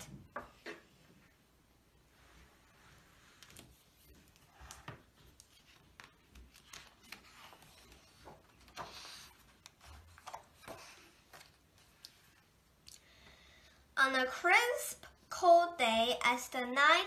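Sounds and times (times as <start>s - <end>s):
light taps and paper rustles: 3.4s - 12.2s.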